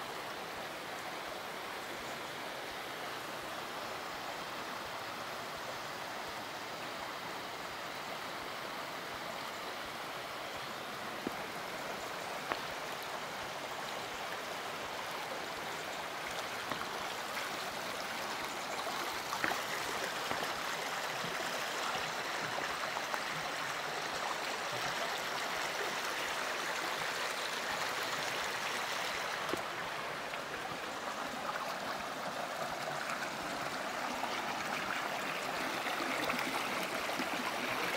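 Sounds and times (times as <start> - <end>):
stream rushing over rocks: 0.0 - 37.9.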